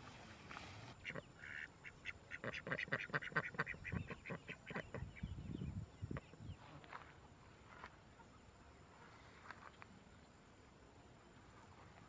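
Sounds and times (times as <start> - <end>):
duck quacking: 0.9 - 5.1.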